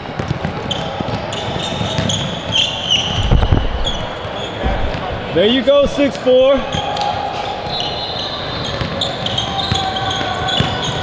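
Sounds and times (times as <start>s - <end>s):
basketball bouncing: 0.0s - 5.1s, 8.6s - 11.0s
sneakers squeaking on hardwood: 0.2s - 5.3s, 7.6s - 11.0s
heavy thumps: 3.1s - 6.0s.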